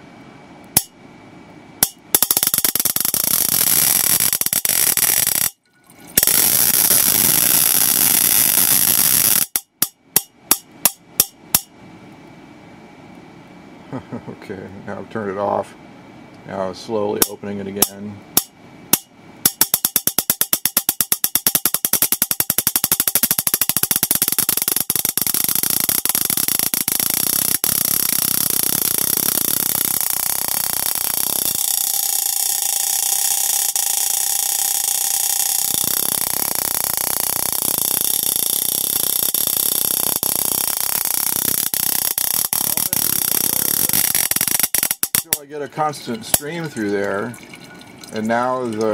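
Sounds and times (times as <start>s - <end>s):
electric spark gap snapping: 1.8s - 11.7s, 17.2s - 45.5s.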